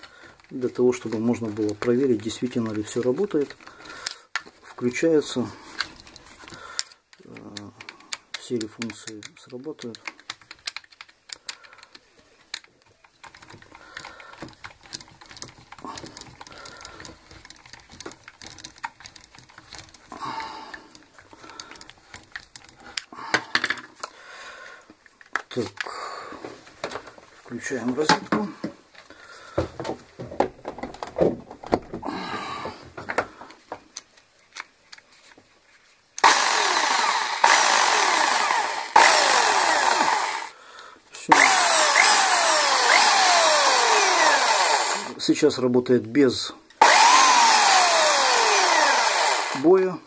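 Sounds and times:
handling clicks: 0:05.8 - 0:20.1
rotary hammer motor running: 0:36.2 - 0:40.5, 0:41.3 - 0:45.2, 0:46.8 - 0:49.7.

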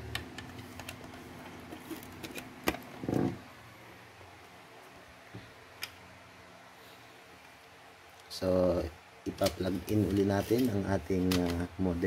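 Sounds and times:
cables and plugs handled: 0:00.0 - 0:03.4, 0:09.3 - 0:12.0
faint steady hum: 0:00.0 - 0:12.0.

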